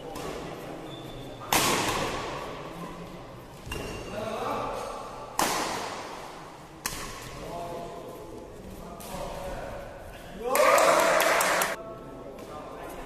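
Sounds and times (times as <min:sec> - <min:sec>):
racket hitting shuttlecock: 0:01.5 - 0:02.4, 0:05.3 - 0:06.2, 0:06.8 - 0:07.4.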